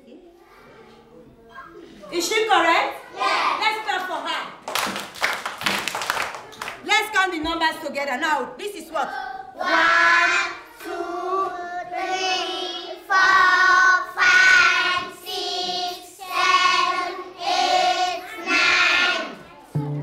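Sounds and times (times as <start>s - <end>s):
children chanting in unison: 3.0s - 3.6s, 9.1s - 19.9s.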